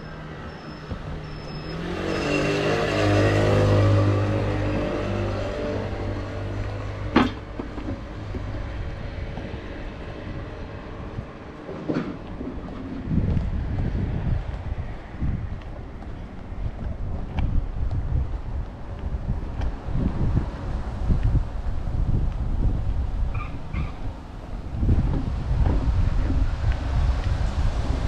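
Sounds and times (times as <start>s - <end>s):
vehicle passing: 1.7s - 7.2s.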